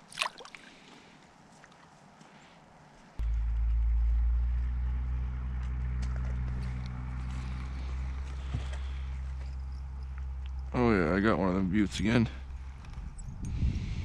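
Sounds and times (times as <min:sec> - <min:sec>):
engine humming: 0:03.2 - 0:13.9.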